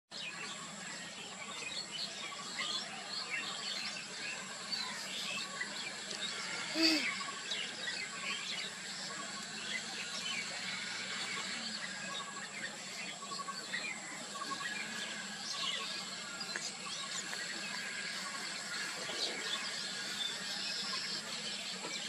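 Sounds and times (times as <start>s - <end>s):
birds chirping and calling: 0.2s - 22.0s
steady high-pitched whine: 0.2s - 22.0s
rising and falling bird call: 6.3s - 7.6s.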